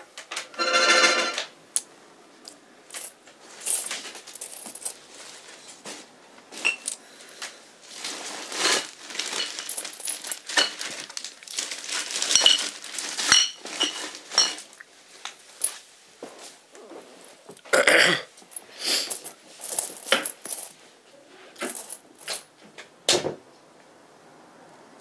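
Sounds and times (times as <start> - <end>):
clattering and clinking: 0.3 - 1.5
rustling noise: 2.3 - 17.5.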